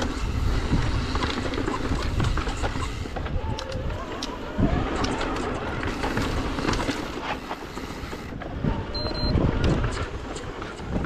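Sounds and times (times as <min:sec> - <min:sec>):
wind on microphone: 0:00.0 - 0:07.2, 0:08.0 - 0:11.0
bike knocking and rattling: 0:00.0 - 0:11.0.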